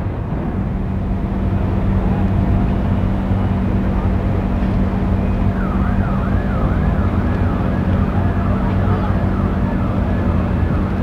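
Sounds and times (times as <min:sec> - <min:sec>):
low engine drone: 0:00.0 - 0:11.0
warbling siren: 0:05.0 - 0:11.0.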